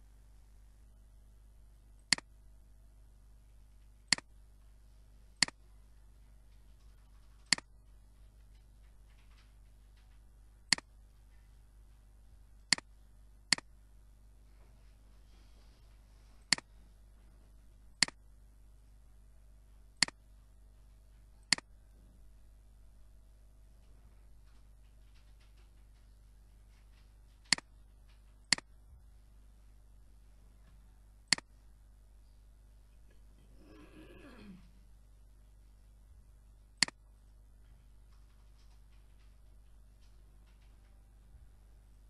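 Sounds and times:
faint steady hum: 0.0s - 42.0s
computer mouse clicking: 7.2s - 7.7s.

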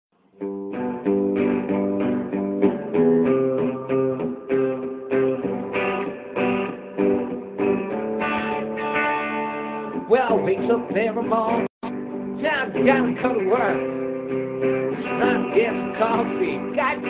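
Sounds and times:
guitar chords strummed: 0.3s - 17.0s.

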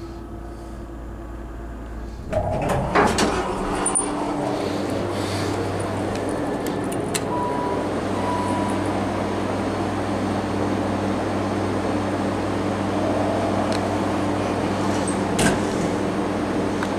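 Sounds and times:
low mechanical hum: 0.0s - 16.9s
elevator doors thumping shut: 2.2s - 9.0s
elevator signal click: 5.6s - 9.4s
short elevator beeps: 7.3s - 9.0s.

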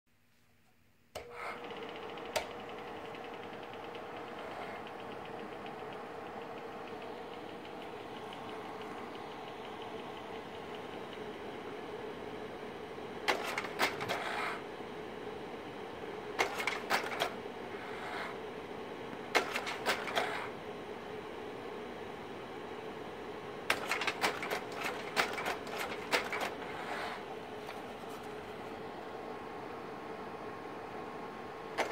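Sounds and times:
projector fan humming: 0.2s - 31.9s
slide projector mechanism clicking: 23.7s - 26.7s.

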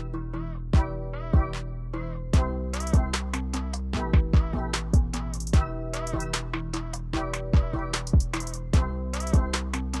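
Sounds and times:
upbeat music with deep drums: 0.8s - 1.7s, 2.4s - 10.0s.

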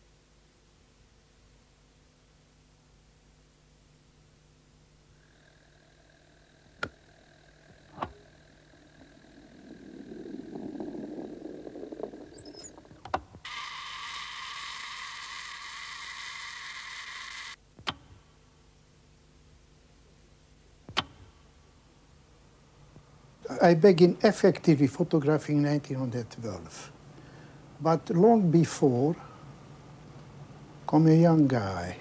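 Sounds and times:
hissing whirr: 5.3s - 17.6s
rumbling slide: 9.0s - 13.0s.

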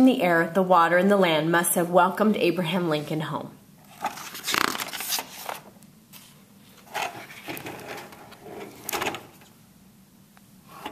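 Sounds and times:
paper pages rustling: 3.9s - 8.4s.

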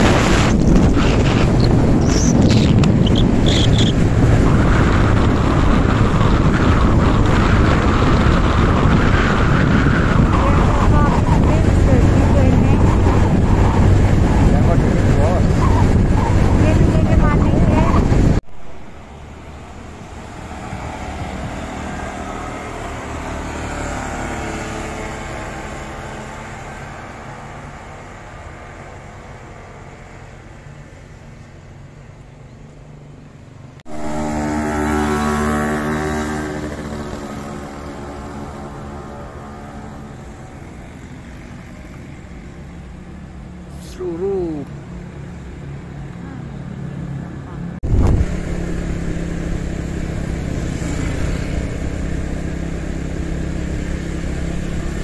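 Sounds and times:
roadside traffic rumble: 0.0s - 55.0s
vehicle drone: 0.0s - 55.0s.

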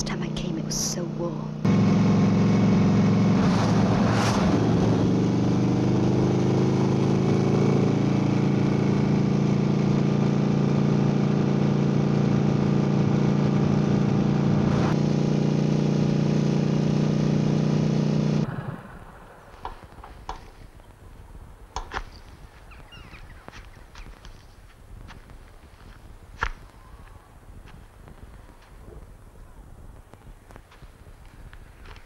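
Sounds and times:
motorcycle engine running: 0.0s - 18.6s.

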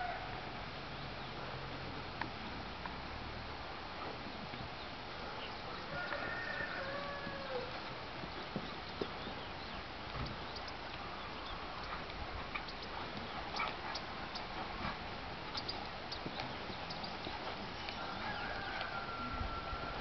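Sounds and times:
horse hoofbeats on sand: 11.9s - 18.7s.

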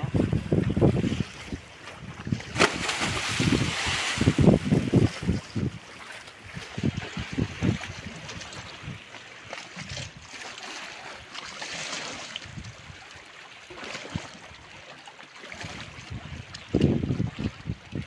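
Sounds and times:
wind gusts on microphone: 0.0s - 9.1s, 15.6s - 18.0s
sea water lapping: 0.0s - 17.8s.

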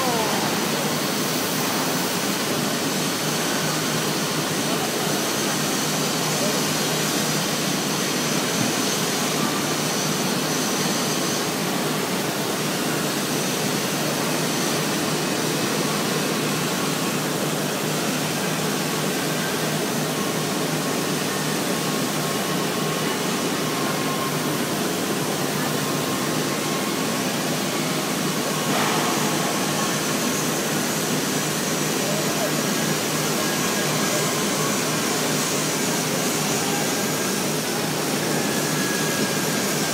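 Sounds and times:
steady rushing foundry noise: 19.0s - 39.9s.

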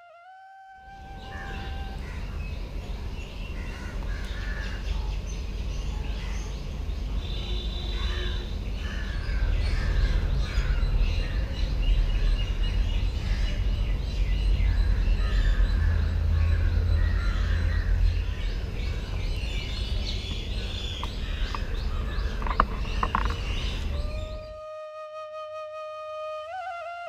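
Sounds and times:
held flute note: 0.0s - 2.1s, 23.9s - 27.0s
birds calling and chirping: 1.0s - 24.6s
crows cawing: 1.2s - 2.4s, 3.6s - 4.8s, 8.0s - 10.6s.

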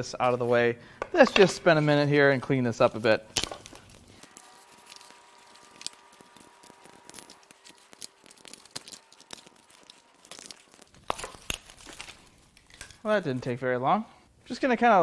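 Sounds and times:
plastic connector clips rustling and clicking: 3.3s - 13.1s.

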